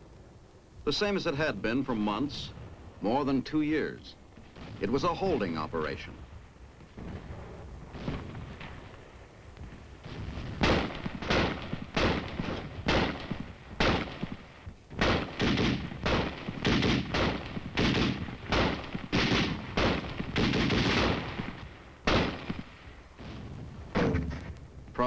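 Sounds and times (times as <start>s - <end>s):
small-arms gunfire: 10.4s - 24.3s.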